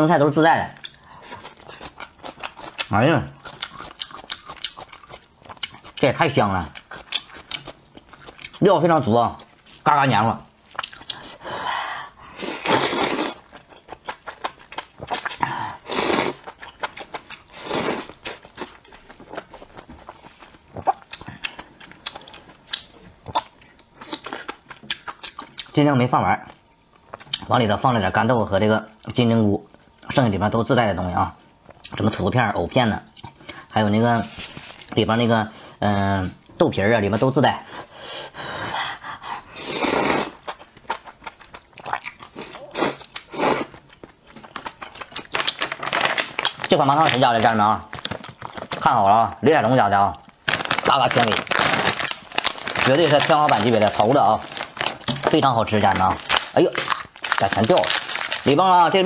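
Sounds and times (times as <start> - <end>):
wet chewing and lip-smacking: 0.8 - 6.1, 6.7 - 8.6
wet chewing: 0.8 - 8.7, 12.7 - 25.7
person slurping noodles: 12.4 - 13.4, 15.3 - 16.4, 17.6 - 18.1, 39.5 - 40.4.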